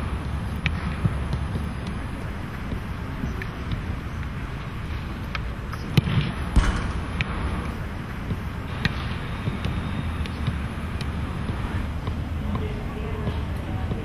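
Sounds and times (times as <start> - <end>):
football being struck: 6.0 - 9.8
low rumble: 6.5 - 8.8.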